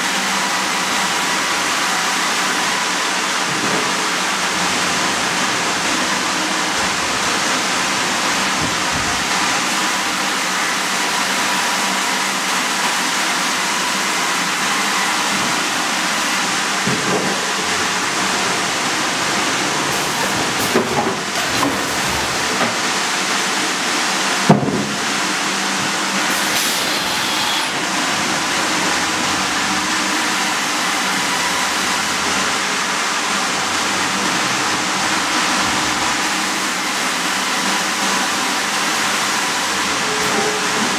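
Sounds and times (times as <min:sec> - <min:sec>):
sawmill saw and carriage din: 0:00.0 - 0:40.9
sharp loud knock: 0:24.5 - 0:25.0.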